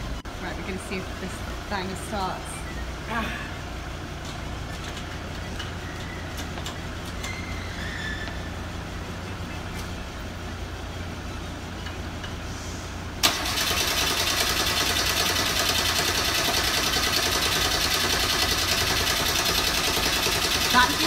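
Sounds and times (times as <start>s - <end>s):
car engine starting and running: 0.0s - 21.0s.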